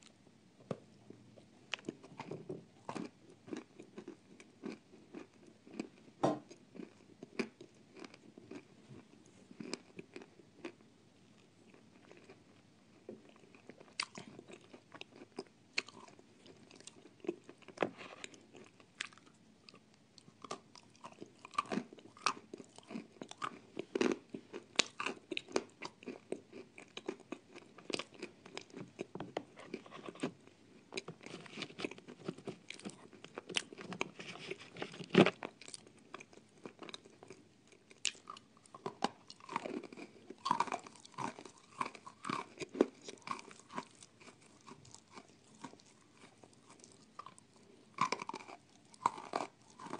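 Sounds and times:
chewing: 1.7s - 10.8s, 11.4s - 49.9s
crunching clay between teeth: 20.3s - 49.9s.

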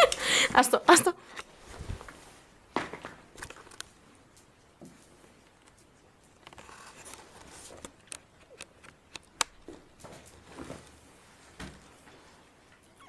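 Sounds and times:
dogs scuffling and rustling: 1.6s - 8.0s, 9.6s - 12.8s
sharp clicks and taps: 8.0s - 9.7s.

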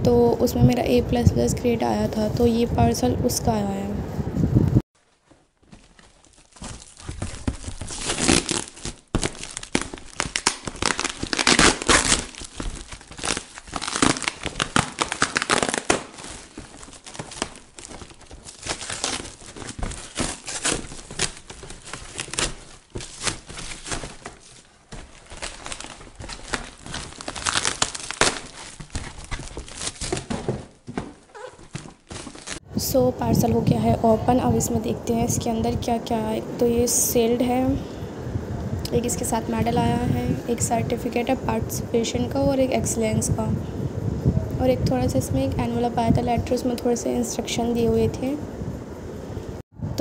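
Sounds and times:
plastic wrapping crinkling: 5.0s - 32.6s
tape and cardboard tearing: 5.8s - 32.6s.

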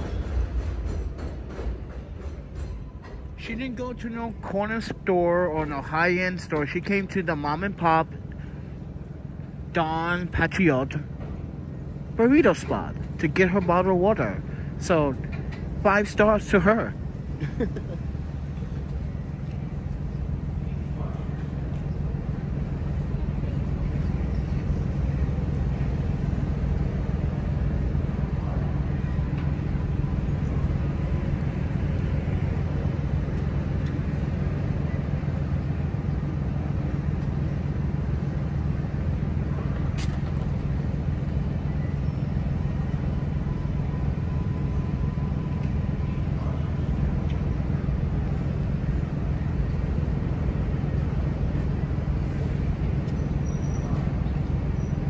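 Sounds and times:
faint street noise: 0.0s - 55.0s
low engine hum: 0.0s - 55.0s.

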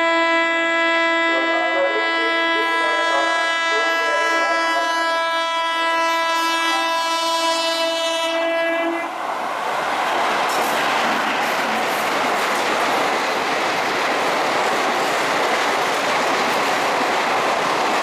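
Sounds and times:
train horn blast: 0.0s - 9.2s
train passing at speed: 1.0s - 18.0s.

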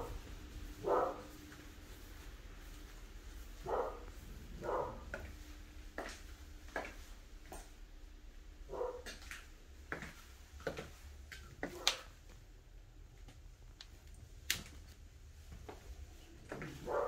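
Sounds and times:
footsteps: 0.0s - 7.8s, 8.8s - 12.4s, 14.6s - 17.0s
steady low hum: 0.0s - 17.0s.

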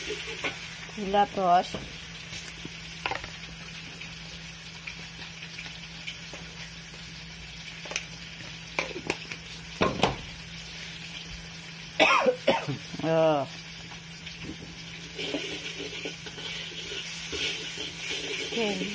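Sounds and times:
food sizzling in oil: 0.0s - 18.9s
metal spatula scraping wok: 15.2s - 18.9s.

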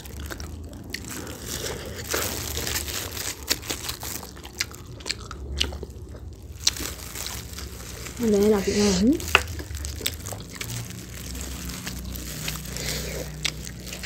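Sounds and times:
wet chewing and mouth smacks: 9.2s - 14.0s.

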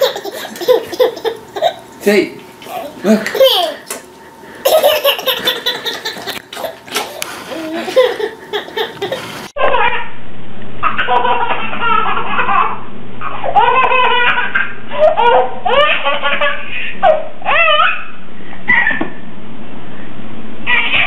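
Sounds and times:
baby laughing: 0.0s - 1.9s, 3.3s - 4.0s, 4.6s - 10.1s, 10.8s - 18.0s, 20.7s - 21.0s.

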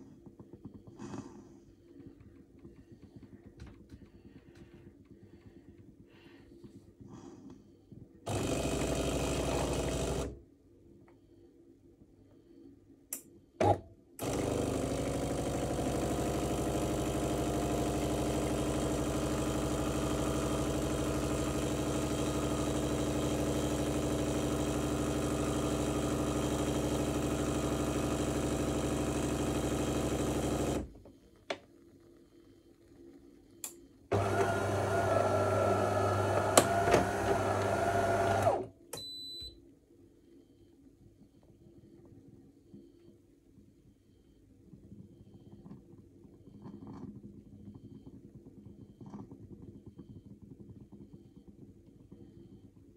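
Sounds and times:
coffee grinder motor: 8.3s - 10.4s, 14.2s - 30.9s, 34.1s - 38.6s
espresso pump running: 8.3s - 10.4s, 14.2s - 30.9s, 34.1s - 38.7s.

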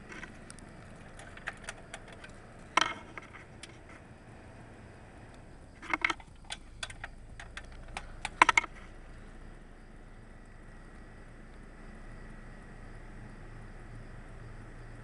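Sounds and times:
sharp electrical clicks and snaps: 0.0s - 4.1s, 5.3s - 9.2s
faint steady background noise: 0.0s - 15.0s.

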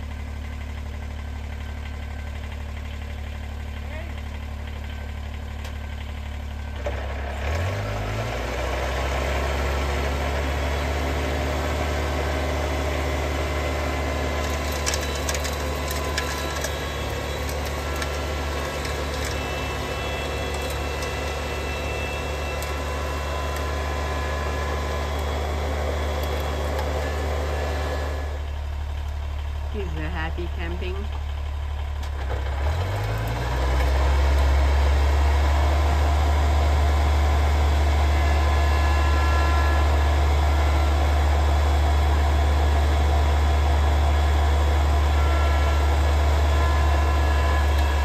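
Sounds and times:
tractor diesel engine running: 0.0s - 48.0s
snowblower throwing snow: 13.2s - 28.3s.

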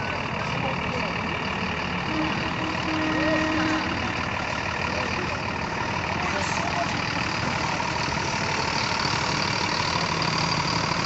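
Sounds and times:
bus engine rumbling: 0.0s - 11.0s.

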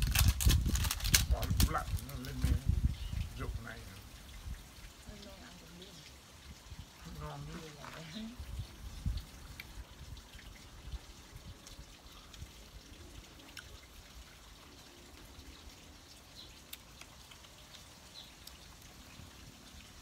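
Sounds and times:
faint trickling water: 0.0s - 20.0s
small clicks and ticks: 16.1s - 19.0s.

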